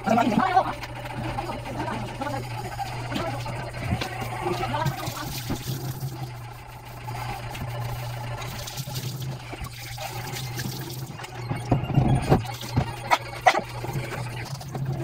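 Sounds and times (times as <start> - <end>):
tap water running into sink: 8.4 - 11.2.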